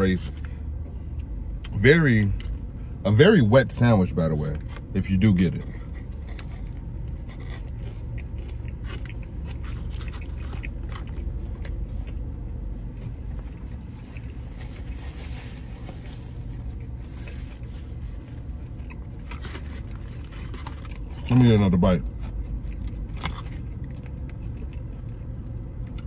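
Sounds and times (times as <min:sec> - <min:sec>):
low rumble: 0:00.0 - 0:26.0
person chewing food: 0:05.7 - 0:26.0.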